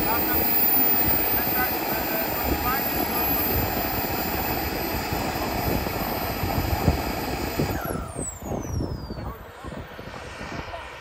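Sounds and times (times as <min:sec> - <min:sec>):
model jet turbine whine: 0:00.0 - 0:11.0.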